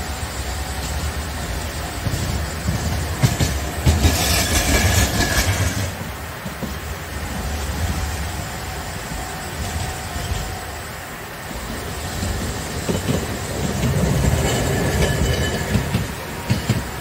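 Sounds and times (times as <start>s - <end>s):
streetcar rumbling past: 0.0s - 17.0s
wheel clacks: 2.0s - 6.8s.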